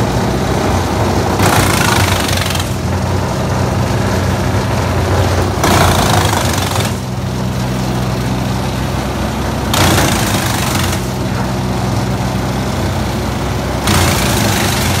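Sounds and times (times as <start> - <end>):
loud rushing surges: 0.0 - 7.2, 9.7 - 11.3, 13.8 - 15.0
wood chipper engine running: 0.0 - 15.0.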